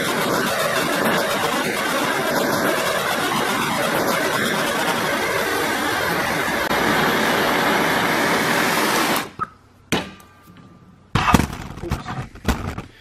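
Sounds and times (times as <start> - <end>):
gas torch flame hissing: 0.0 - 9.5
loud clunk: 11.1 - 12.9.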